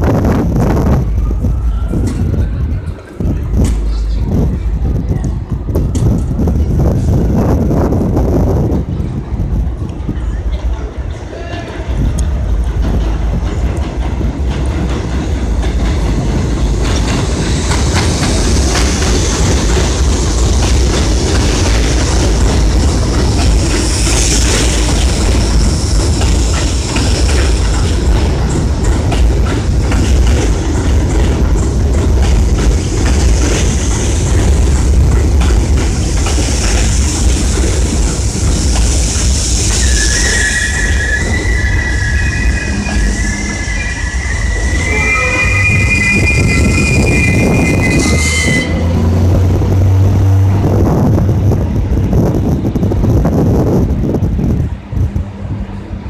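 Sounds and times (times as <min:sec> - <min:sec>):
subway train wheels rumbling: 0:00.0 - 0:56.0
rail-joint clacking: 0:09.8 - 0:50.7
high-pitched wheel squeal: 0:39.7 - 0:49.0
high whine stepping in pitch: 0:40.2 - 0:50.6.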